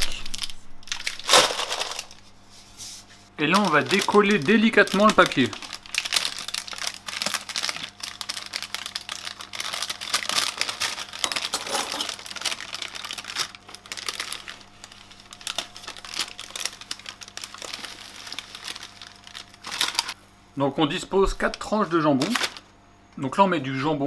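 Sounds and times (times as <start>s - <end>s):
parchment paper crinkling: 3.4s - 20.2s.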